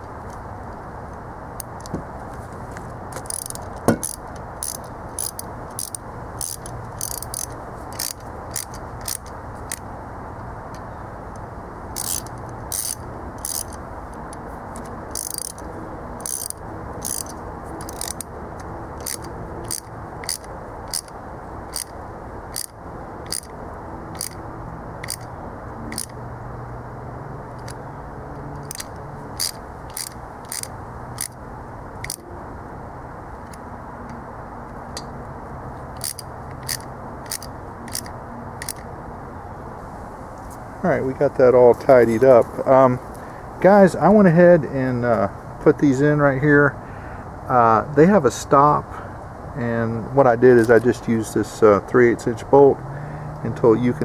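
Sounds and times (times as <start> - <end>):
sharp metal knock: 3.2 - 4.2.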